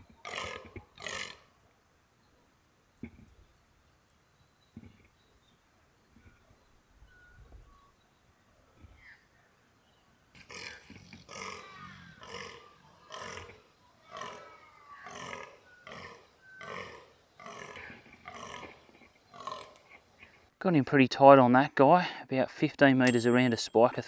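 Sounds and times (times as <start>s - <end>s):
deer croaking: 0.2s - 1.4s, 10.4s - 19.8s.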